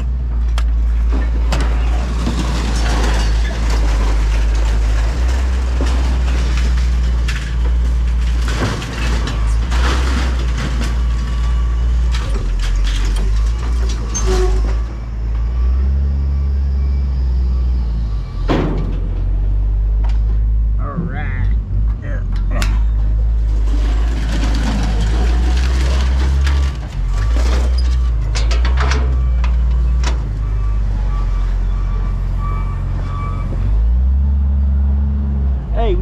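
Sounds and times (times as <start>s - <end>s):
heavy equipment engine rumbling: 0.0s - 36.0s
scrap metal clanking: 1.0s - 11.2s, 22.5s - 29.1s.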